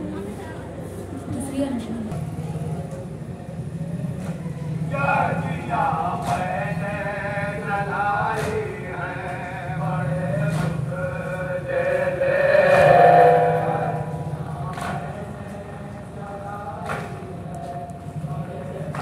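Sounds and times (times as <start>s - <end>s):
men chanting together: 4.9s - 17.5s.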